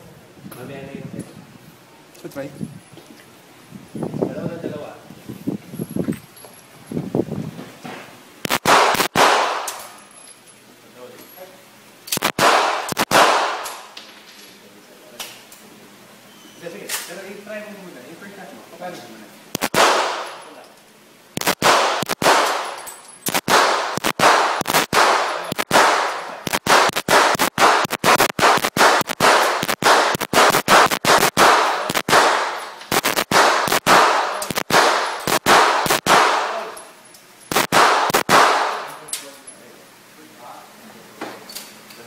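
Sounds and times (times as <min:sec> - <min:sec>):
pistol shots echoing: 0:08.5 - 0:10.0, 0:12.2 - 0:13.9, 0:19.6 - 0:20.4, 0:21.4 - 0:36.7, 0:37.5 - 0:38.9.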